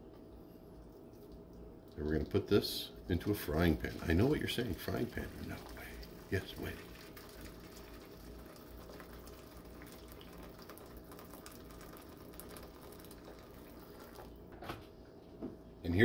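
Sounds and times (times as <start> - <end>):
water pouring into pan: 3.3 - 14.5.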